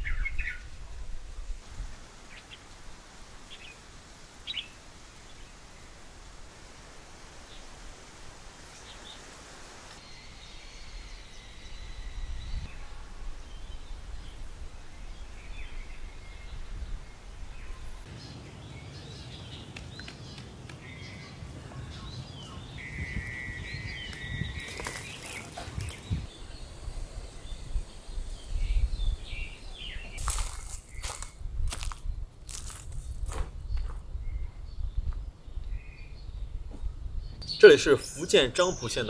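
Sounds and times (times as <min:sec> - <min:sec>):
bird chirps and trills: 0:10.0 - 0:31.4
rustling or crunching: 0:23.2 - 0:26.3, 0:30.1 - 0:33.6.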